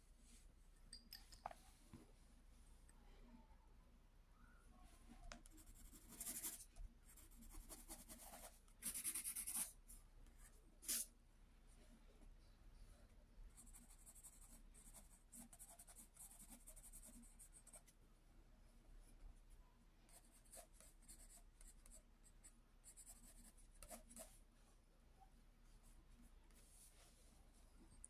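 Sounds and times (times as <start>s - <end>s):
pencil scratching on paper: 5.6s - 9.8s, 13.6s - 17.9s, 20.1s - 24.4s.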